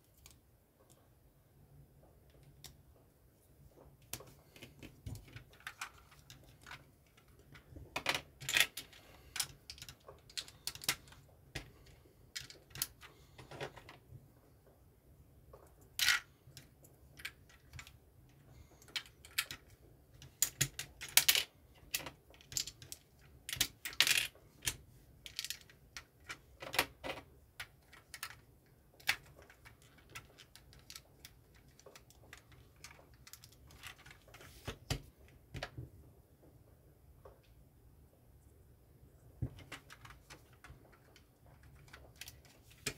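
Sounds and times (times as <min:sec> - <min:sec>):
plastic bricks clicking and snapping: 0:04.0 - 0:11.7, 0:12.3 - 0:14.0, 0:18.8 - 0:35.8.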